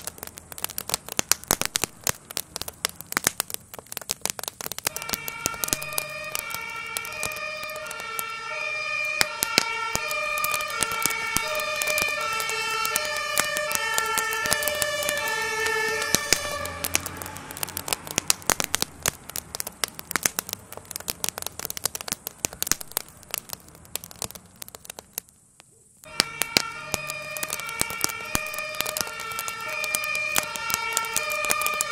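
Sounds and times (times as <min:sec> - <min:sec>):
fire crackling and popping: 0:00.0 - 0:31.9
two-tone emergency siren: 0:04.9 - 0:18.0, 0:26.1 - 0:31.9.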